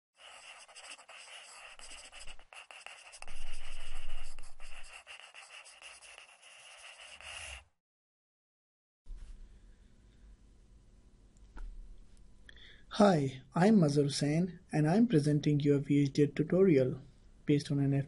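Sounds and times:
pen scribbling on paper: 0:00.2 - 0:07.7.

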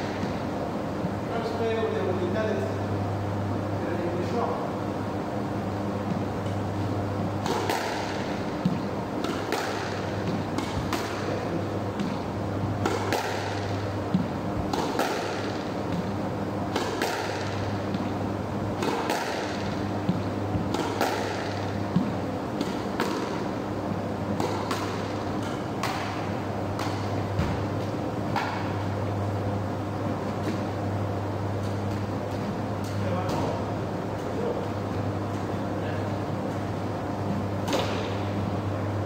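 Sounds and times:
steady low hum: 0:00.0 - 0:39.0
squash ball impacts: 0:07.4 - 0:23.6, 0:24.3 - 0:28.9.

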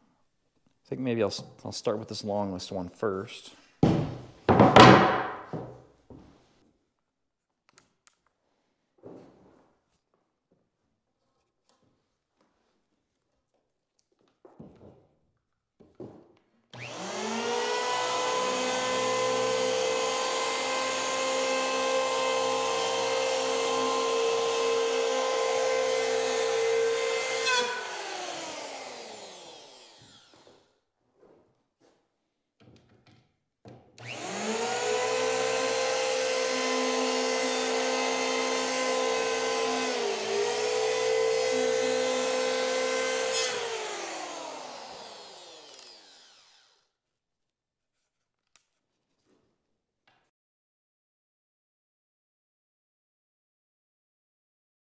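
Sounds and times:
electric wood planer whining: 0:04.7 - 0:05.6, 0:16.8 - 0:30.6, 0:34.0 - 0:46.9.

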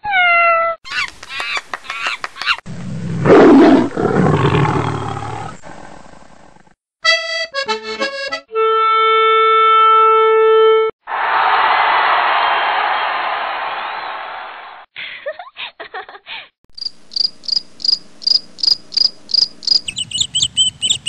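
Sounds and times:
reedy accordion-like notes: 0:07.0 - 0:10.9.

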